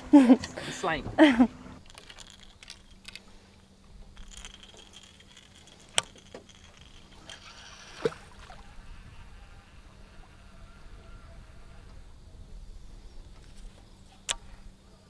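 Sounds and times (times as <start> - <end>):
fishing rod and reel clicks: 1.8 - 8.6, 13.4 - 14.5.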